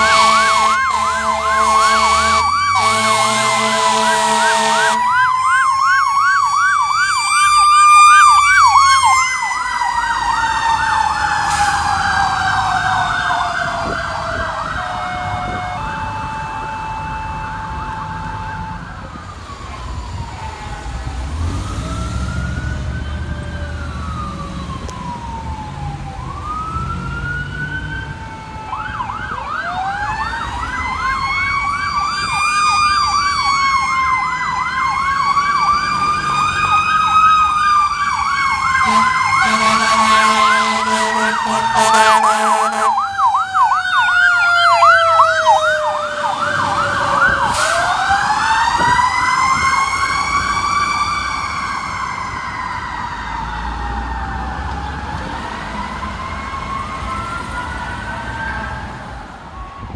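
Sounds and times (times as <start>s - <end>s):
air horn blaring: 0.0s - 5.1s, 15.0s - 18.8s, 38.8s - 43.0s
fire truck sirens: 0.0s - 59.9s.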